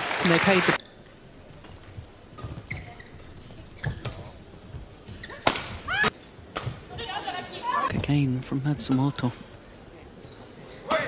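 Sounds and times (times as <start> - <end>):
shoes squeaking on court: 0.8 - 7.0
rackets striking shuttlecock: 5.2 - 6.9.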